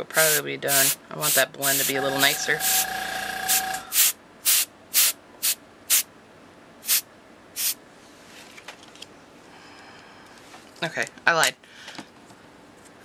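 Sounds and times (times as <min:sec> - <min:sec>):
compressor humming: 0:00.0 - 0:04.1
airbrush spraying puffs of air: 0:00.2 - 0:02.8, 0:03.5 - 0:06.1, 0:06.8 - 0:07.0, 0:07.6 - 0:07.8.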